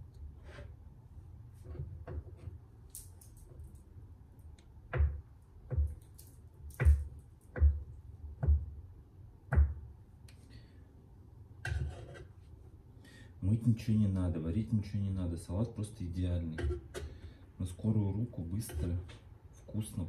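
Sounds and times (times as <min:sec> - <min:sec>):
knife chopping on wooden board: 0:04.9 - 0:06.0, 0:06.7 - 0:07.8, 0:09.5 - 0:09.9.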